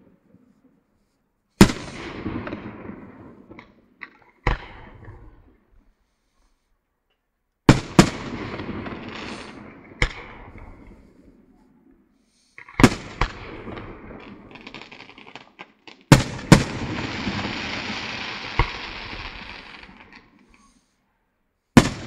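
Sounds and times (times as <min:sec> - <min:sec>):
firework crackles: 0:01.6 - 0:05.3, 0:07.7 - 0:11.6, 0:12.5 - 0:20.9.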